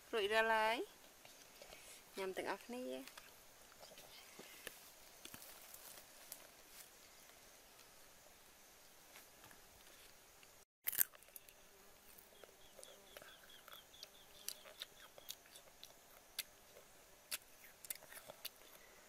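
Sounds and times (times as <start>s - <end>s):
crisp crunching of eating mango: 10.8s - 18.9s
bird chirping: 12.3s - 15.8s.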